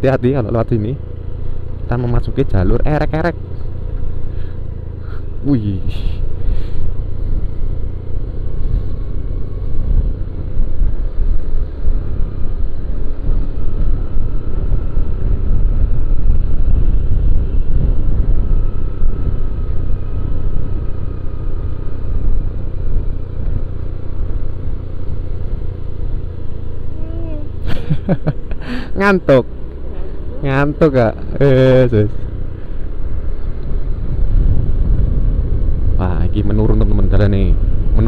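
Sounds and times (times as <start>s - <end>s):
scooter engine and road noise: 0.0s - 38.0s
wind buffeting microphone: 8.6s - 20.6s, 32.4s - 38.0s.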